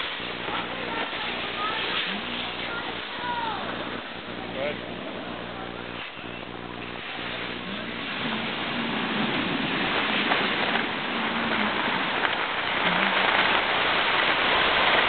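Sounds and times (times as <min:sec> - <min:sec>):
skis sliding over snow: 0:00.0 - 0:15.0
wind on microphone: 0:06.5 - 0:15.0.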